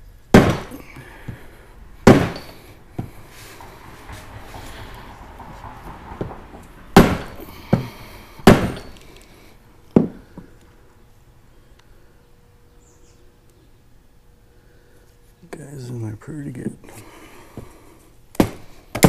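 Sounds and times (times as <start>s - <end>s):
mallet striking metal: 2.0s - 2.6s.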